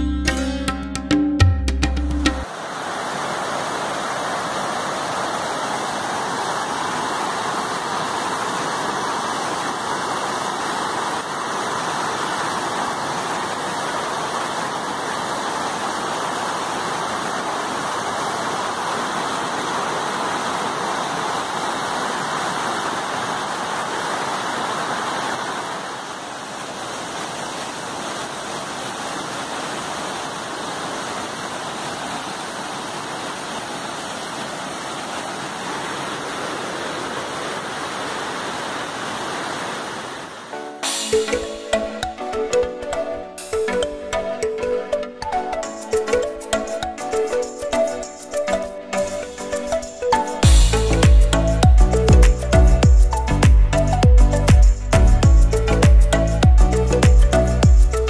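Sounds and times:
waterfall rushing over rock: 2.4 - 58.0.

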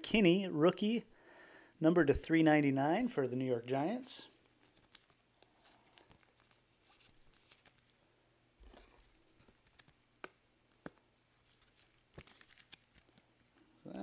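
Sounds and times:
trading cards rustling: 4.4 - 8.0, 8.6 - 14.0.

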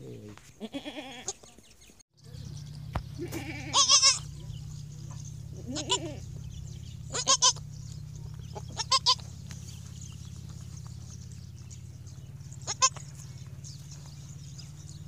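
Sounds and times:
goat kid bleating: 0.6 - 1.5, 3.1 - 4.5, 5.1 - 6.4, 7.0 - 7.7, 8.3 - 9.6, 12.5 - 13.2
steady low hum: 2.2 - 15.0.

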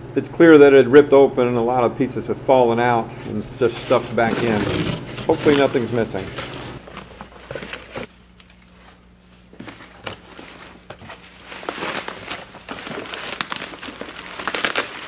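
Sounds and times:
bubble wrap and cardboard crinkling: 3.3 - 15.0.

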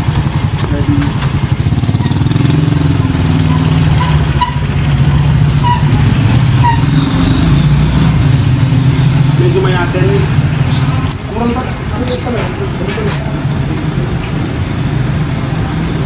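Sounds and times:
small motorcycle engine running: 0.0 - 12.2.

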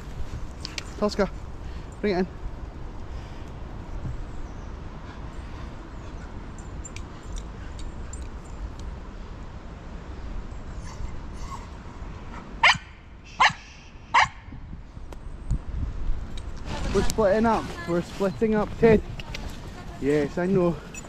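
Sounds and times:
dog barking: 12.6 - 14.4.

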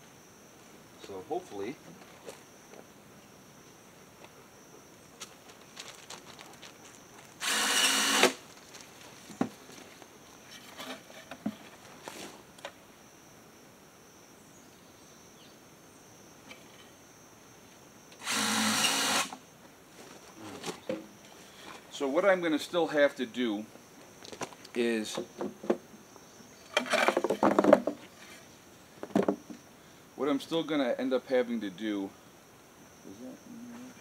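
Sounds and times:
cordless drill running: 7.4 - 8.4, 18.2 - 19.3.

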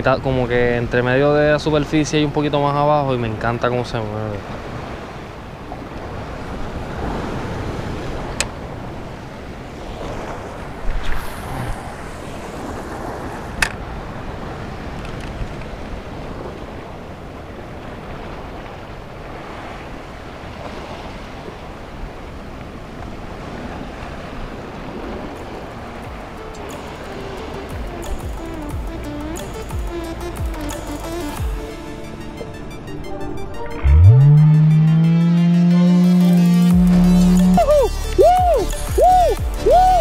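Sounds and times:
wind on microphone: 4.5 - 26.3
waves washing against rocks: 4.6 - 27.2.

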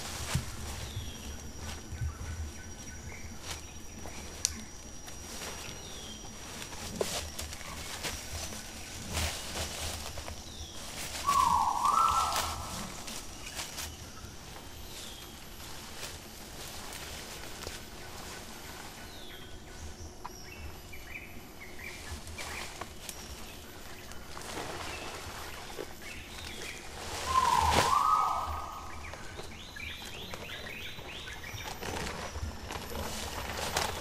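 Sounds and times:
twigs crackling: 0.0 - 19.4, 21.8 - 34.0
leaves rustling: 0.0 - 34.0
bird chirps: 10.2 - 15.4, 18.0 - 32.6
loud animal call: 11.2 - 13.1, 27.2 - 29.0.

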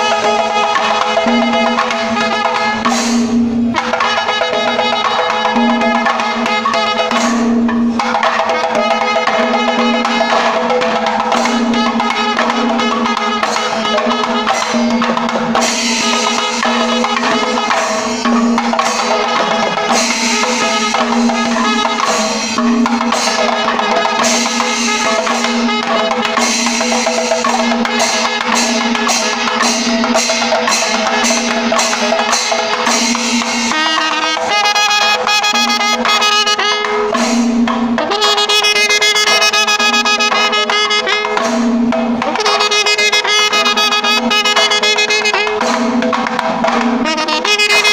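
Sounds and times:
brass horn: 0.0 - 3.2, 3.8 - 47.9
continuous metallic ringing: 0.0 - 34.7
drums beating steady rhythm: 0.0 - 47.9.

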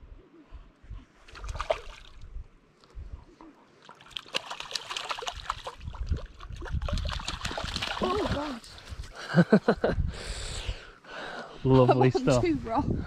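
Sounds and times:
fish splashing at water surface: 1.3 - 2.2, 3.8 - 8.7
wind thumps on microphone: 5.8 - 9.1, 12.6 - 13.0.

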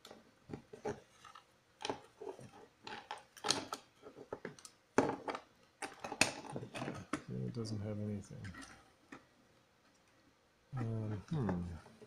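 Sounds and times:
plastic clicks and rattles: 0.0 - 7.3.

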